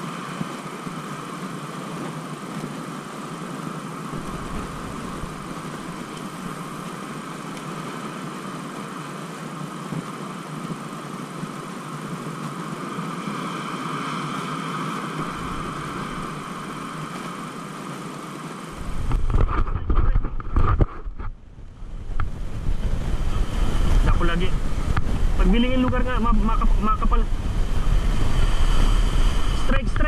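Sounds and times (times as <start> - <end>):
waves breaking against rocks: 0.0 - 7.9, 14.6 - 30.0
steady outdoor rushing noise: 0.0 - 30.0
wind buffeting microphone: 4.0 - 7.7, 15.1 - 17.8, 18.7 - 30.0.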